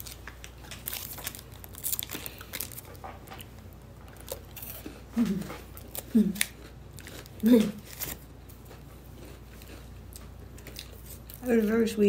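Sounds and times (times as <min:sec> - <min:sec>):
plastic wrapper crinkling: 0:00.0 - 0:08.3.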